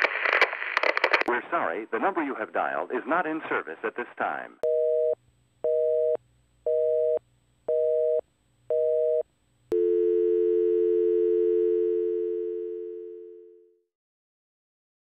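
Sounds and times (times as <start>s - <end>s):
steady dial tone: 4.6s - 13.8s
telephone busy signal: 4.7s - 13.8s.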